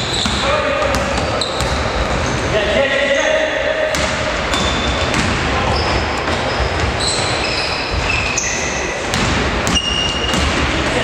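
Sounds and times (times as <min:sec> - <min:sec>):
basketball bouncing: 0:00.0 - 0:02.5, 0:03.9 - 0:08.1, 0:09.0 - 0:11.0
sneakers squeaking on wooden floor: 0:00.0 - 0:10.9
echo of gym hall: 0:00.0 - 0:11.0.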